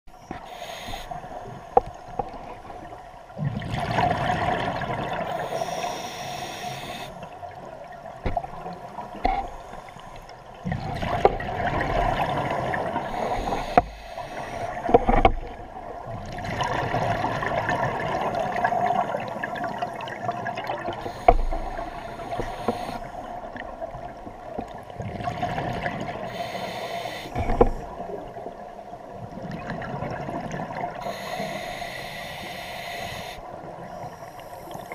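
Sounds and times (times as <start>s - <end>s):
diver inhaling through regulator: 0.2s - 1.5s, 5.3s - 7.2s, 13.0s - 15.0s, 21.0s - 23.2s, 26.2s - 27.9s, 31.0s - 33.4s.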